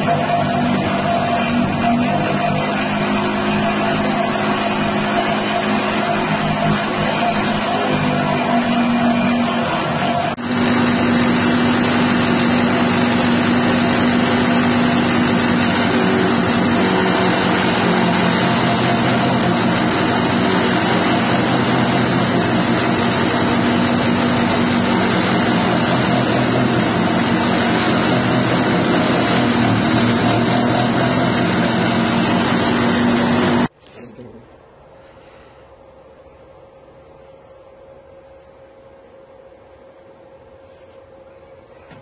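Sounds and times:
grass being shredded: 0.0s - 33.7s
petrol engine running: 0.0s - 33.7s.

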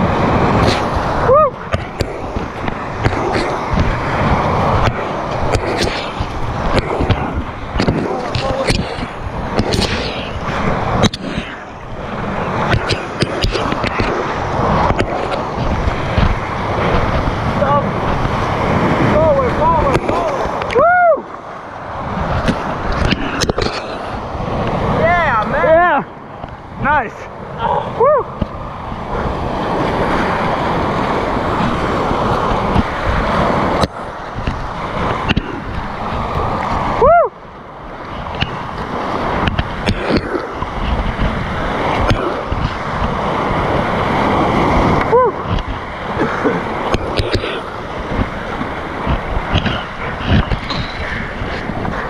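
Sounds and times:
paddle strokes splashing: 0.0s - 52.0s
whitewater rapids rushing: 0.0s - 52.0s
spatters of spray: 4.6s - 11.8s.

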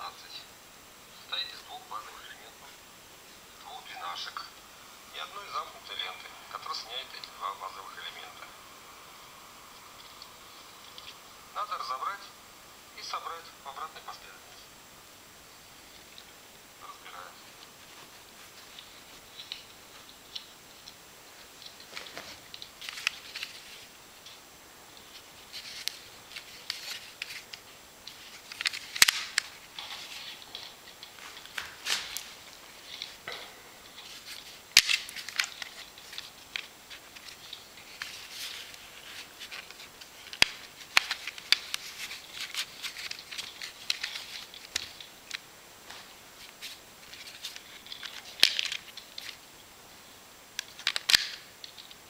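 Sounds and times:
sharp plastic clacks: 25.7s - 29.9s, 50.6s - 52.0s.

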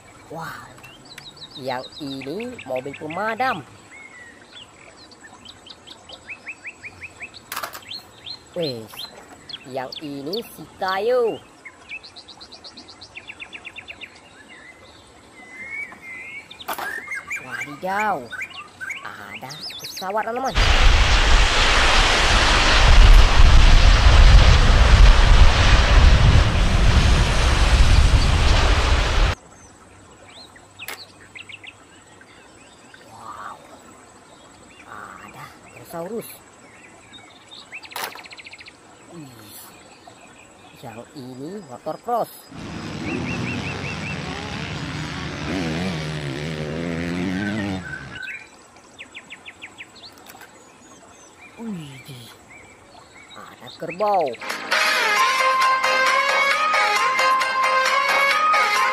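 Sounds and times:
faint bird chirps: 0.0s - 20.5s, 30.2s - 45.2s, 47.4s - 54.4s
jet airliner rumble: 20.5s - 29.4s, 42.5s - 46.6s
dirt bike engine revving: 42.5s - 48.2s.

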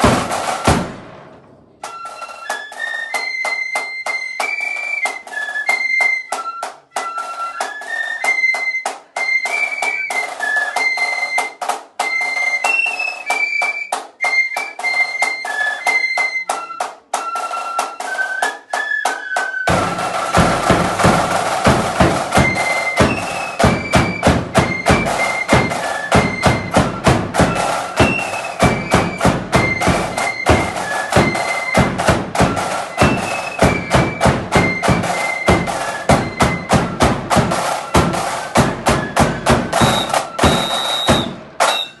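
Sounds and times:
flutes playing a march melody: 0.0s - 0.9s, 1.8s - 42.0s
side drums beat: 0.0s - 2.0s, 19.6s - 42.0s
bass drum: 19.7s - 41.6s.

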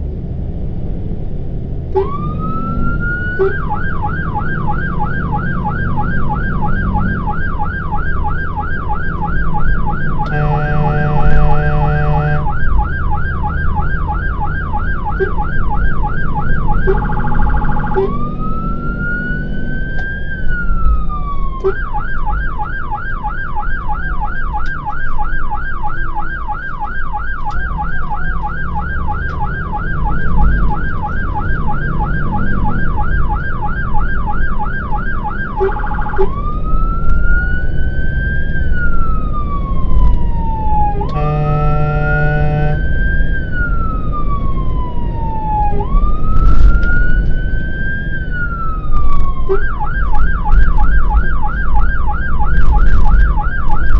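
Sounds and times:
engine and road rumble: 0.0s - 53.9s
fire engine siren: 1.9s - 53.9s
horn blast: 10.2s - 12.6s, 41.0s - 42.9s.

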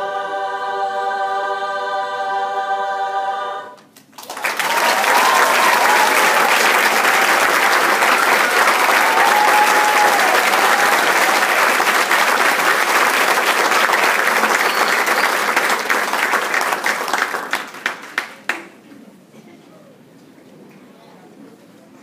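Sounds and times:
crowd applauding: 4.1s - 18.8s.

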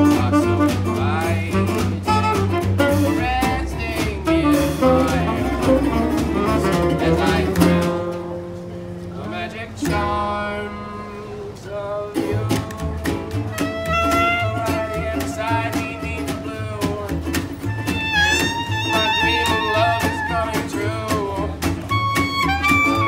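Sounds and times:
acoustic jazz band playing: 0.0s - 23.0s
long horn notes: 13.5s - 16.7s.

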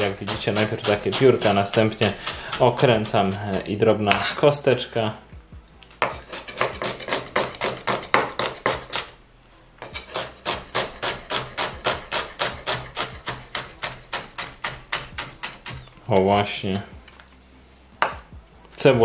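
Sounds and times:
knife chopping on wooden board: 0.0s - 4.3s, 6.0s - 9.1s, 9.8s - 15.9s, 18.0s - 18.3s.

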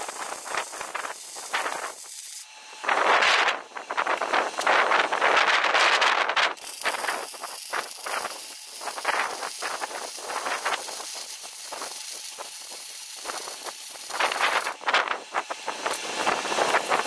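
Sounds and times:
power tool hissing on steel: 0.0s - 17.0s
wind gusts on microphone: 2.8s - 6.6s, 14.2s - 17.0s.

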